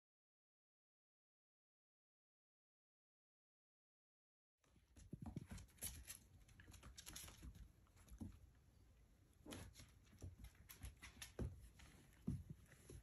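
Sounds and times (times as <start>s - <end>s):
animals scuffling: 5.0s - 8.7s, 9.4s - 13.0s
paws tapping on wooden floor: 9.5s - 13.0s.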